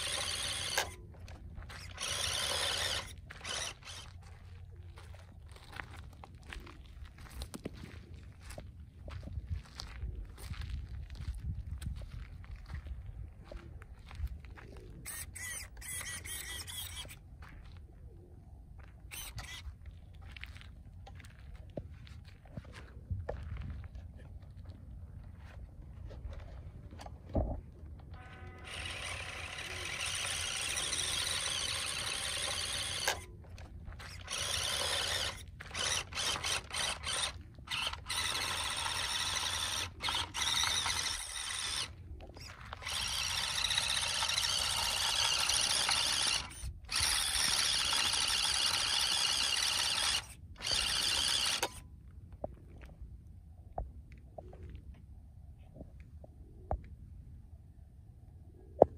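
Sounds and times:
electric motors whining: 0.0 - 4.2, 15.0 - 17.2, 19.1 - 19.6, 28.0 - 51.8.

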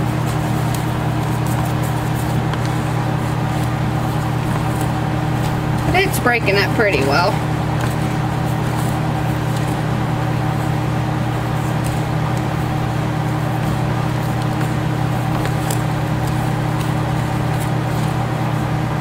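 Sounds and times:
gloved hands rustling powder: 0.0 - 19.0
low electrical hum: 0.0 - 19.0.

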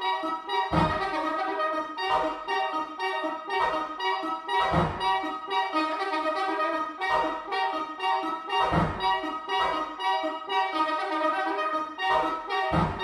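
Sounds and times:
soprano saxophones duet: 0.0 - 13.0
short low thumps: 0.7 - 1.0, 4.7 - 5.2, 8.7 - 9.1, 12.7 - 13.0.

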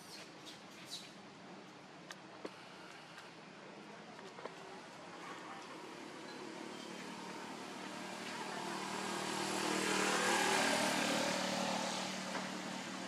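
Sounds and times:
vehicle passing by: 5.6 - 13.0.

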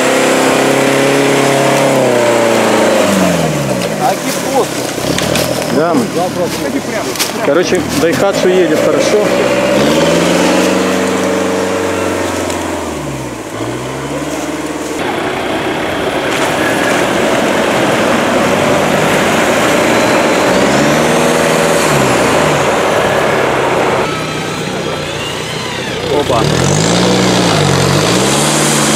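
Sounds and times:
off-road vehicle engines revving: 0.0 - 28.9.

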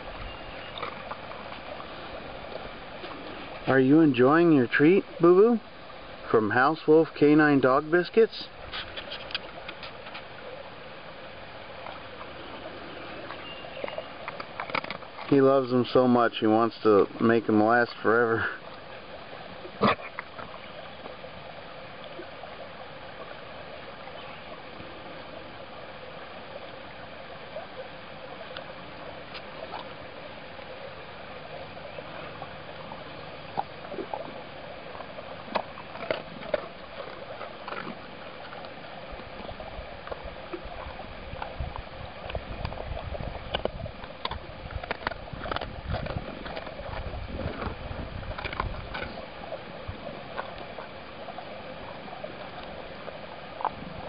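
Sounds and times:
steady background hiss: 0.0 - 47.0.

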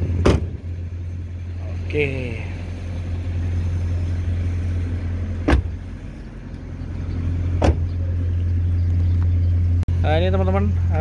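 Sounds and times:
steady low hum: 0.0 - 11.0
car doors slamming: 0.1 - 0.6, 5.4 - 5.9, 7.6 - 8.0.

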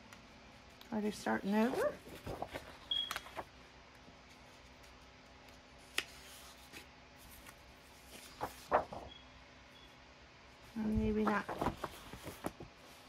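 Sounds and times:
faint steady hum: 0.0 - 13.0
paper handling: 1.4 - 3.6, 4.2 - 9.1, 10.9 - 13.0.

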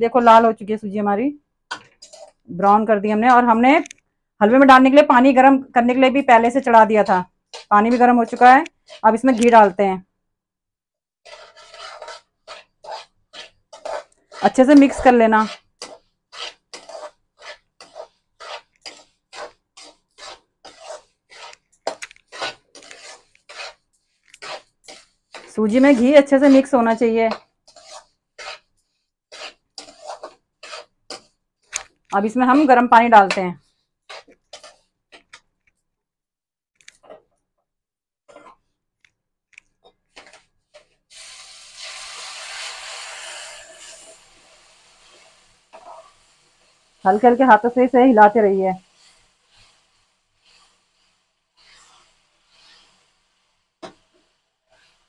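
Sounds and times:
metal spatula scraping a pan: 1.7 - 2.4, 5.1 - 9.8, 11.2 - 35.5, 38.3 - 38.8, 39.8 - 55.0
water hissing in hot pan: 41.1 - 55.0.

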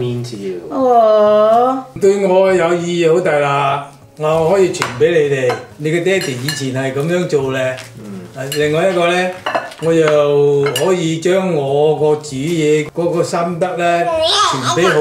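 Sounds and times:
man speaking: 0.0 - 0.6, 2.0 - 15.0
cutlery and dishes clinking: 4.3 - 11.4.

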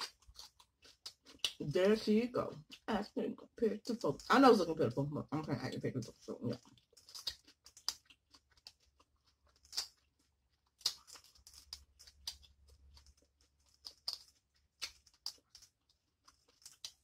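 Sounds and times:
seafood shells cracking: 0.0 - 1.6, 6.6 - 17.0.

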